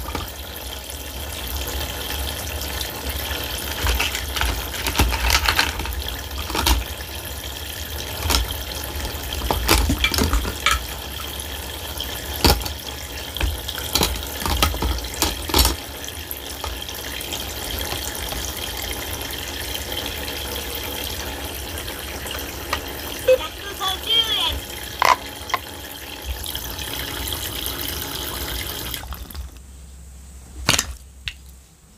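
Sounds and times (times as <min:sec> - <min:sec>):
water running and splashing: 0:00.0 - 0:29.6
plastic dishes knocking: 0:03.6 - 0:06.9, 0:08.1 - 0:11.4, 0:12.3 - 0:15.8, 0:25.0 - 0:25.7.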